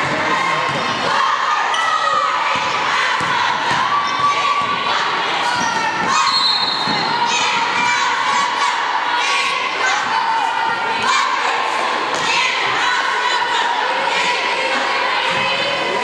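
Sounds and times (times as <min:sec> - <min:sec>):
crowd shouting and cheering: 0:00.0 - 0:16.0
basketball bouncing on gym floor: 0:02.5 - 0:04.8.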